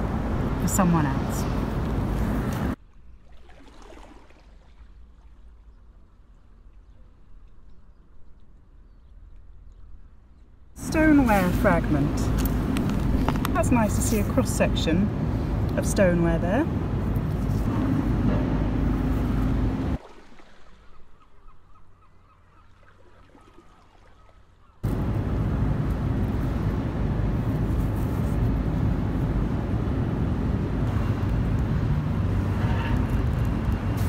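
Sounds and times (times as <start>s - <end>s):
low outdoor rumble: 0.0s - 2.9s, 5.0s - 20.0s, 24.8s - 34.0s.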